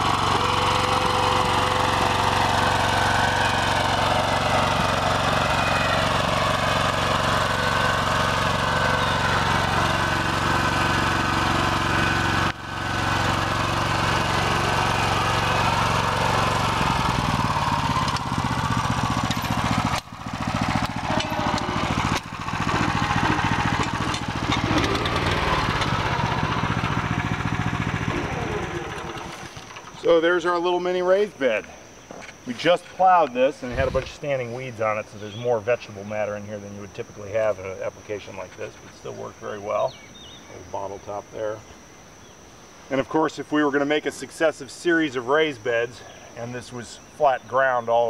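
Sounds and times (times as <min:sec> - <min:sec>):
walk-behind tractor engine running: 0:00.0 - 0:30.1.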